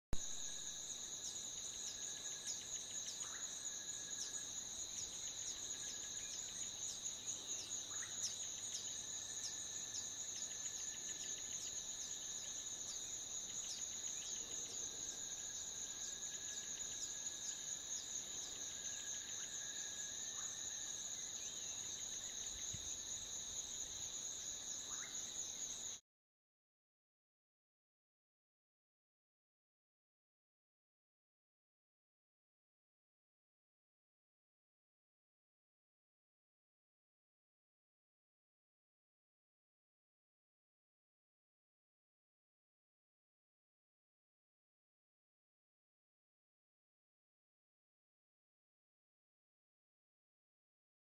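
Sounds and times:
insects chorus with ticking: 0.2 - 26.0.

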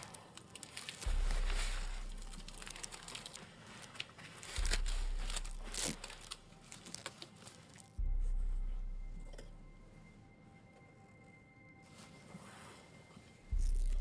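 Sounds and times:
paper or plastic crinkling: 0.0 - 8.0
deep low booms: 1.1 - 3.1, 8.0 - 9.9, 13.5 - 14.0.

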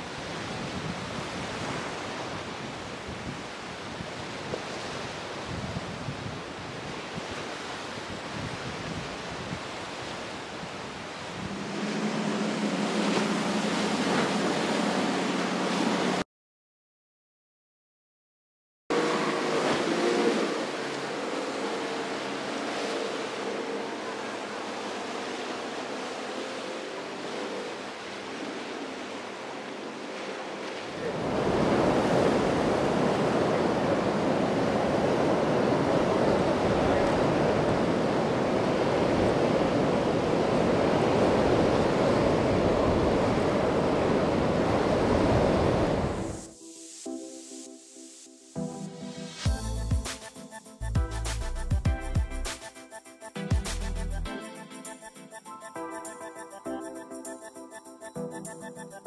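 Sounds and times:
wind and surf rushing: 0.0 - 16.2, 18.9 - 59.0
outboard motor humming: 11.5 - 16.2, 18.9 - 29.1.

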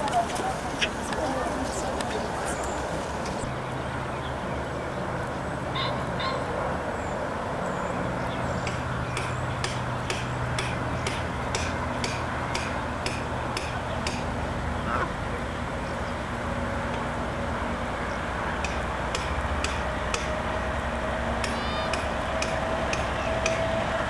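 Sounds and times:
short bird calls: 5.7 - 6.5
evenly spaced sharp ticks: 8.6 - 14.4, 18.6 - 20.8, 21.4 - 23.7.

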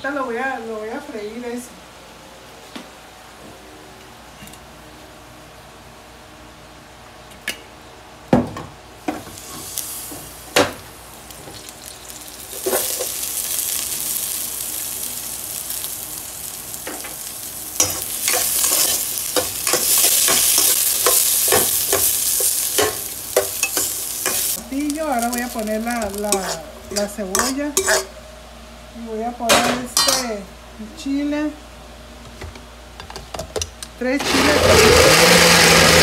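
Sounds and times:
onion sizzling in hot fat: 9.0 - 28.2.

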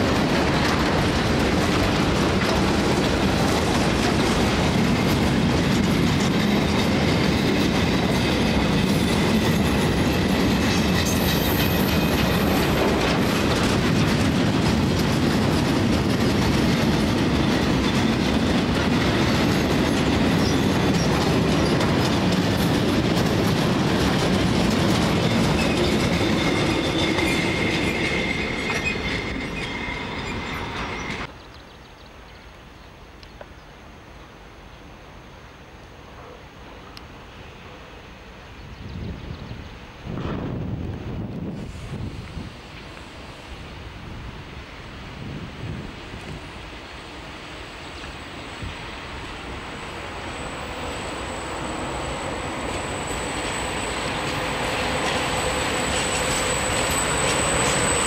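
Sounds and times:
wheels clattering over rail joints: 0.0 - 31.3
freight train rumbling past: 0.0 - 31.4, 36.6 - 58.0
wheels squealing: 4.2 - 31.3, 49.4 - 58.0.

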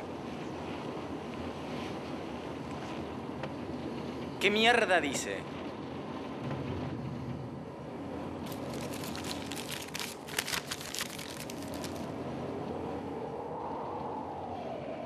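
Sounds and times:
paper crinkling: 8.5 - 12.1.

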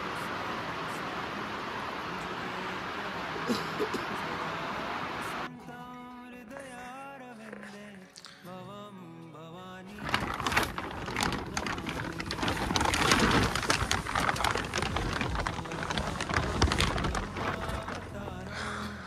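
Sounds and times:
heavy rain falling: 0.0 - 5.5, 10.0 - 18.8.

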